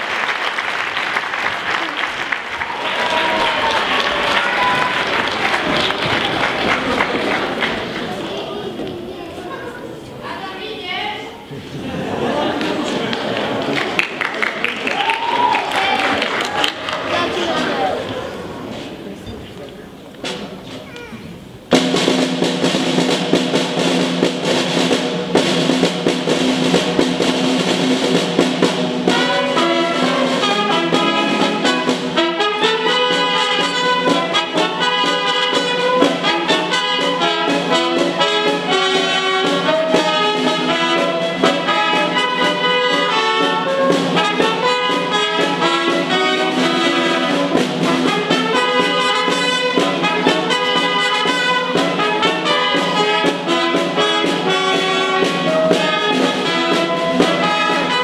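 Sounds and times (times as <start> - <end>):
wind ensemble playing a tune: 21.7 - 58.0.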